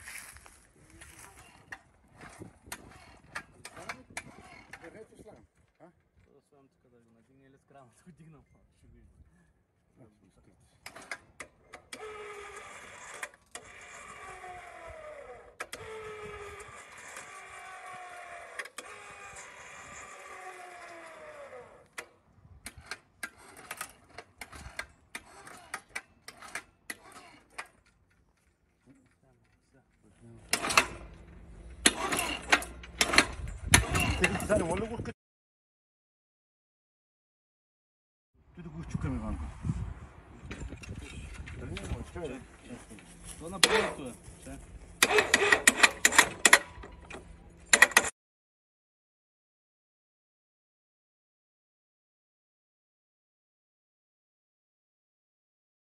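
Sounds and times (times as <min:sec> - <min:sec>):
electric hoist motor winding down: 0:10.8 - 0:27.9, 0:30.4 - 0:35.0, 0:43.0 - 0:44.1, 0:44.8 - 0:48.1.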